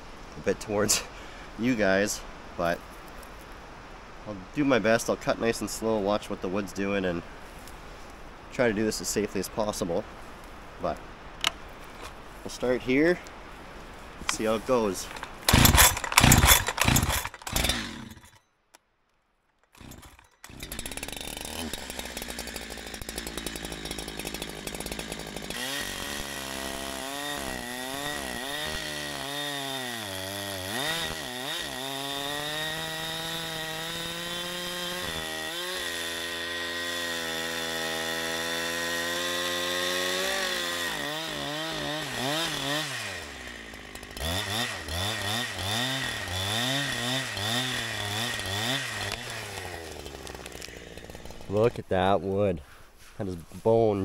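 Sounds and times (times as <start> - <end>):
chainsaw cutting log: 14.2 - 18.4, 19.7 - 51.8.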